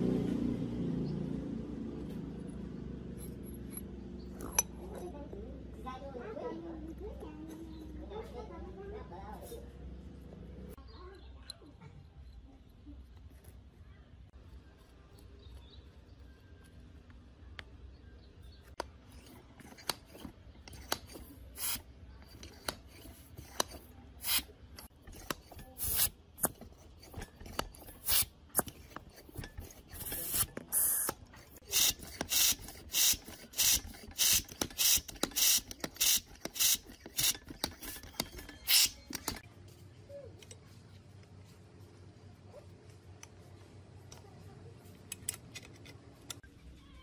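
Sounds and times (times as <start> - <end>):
foot pump strokes hissing: 19.7 - 39.4.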